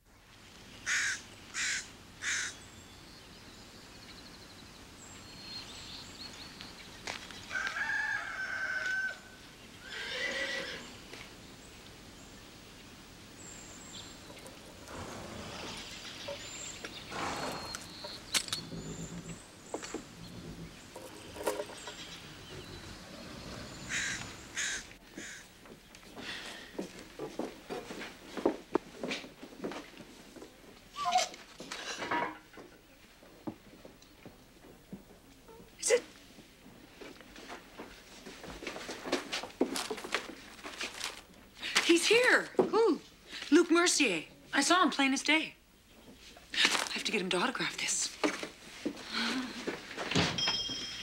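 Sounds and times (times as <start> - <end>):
small birds chirping: 0.2 - 7.5, 9.4 - 26.7
rooster crowing: 7.5 - 9.4
horse whinnying: 9.8 - 10.9, 14.8 - 16.2, 17.1 - 19.4, 31.0 - 31.4.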